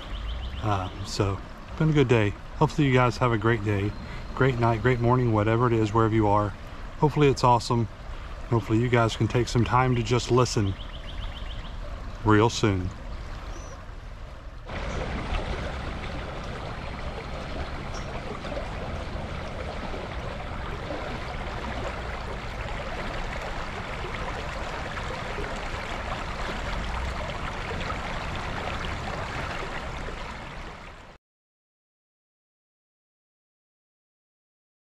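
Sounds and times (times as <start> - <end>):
creek water rippling over rocks: 0.0 - 31.2
low rumble: 13.9 - 25.7.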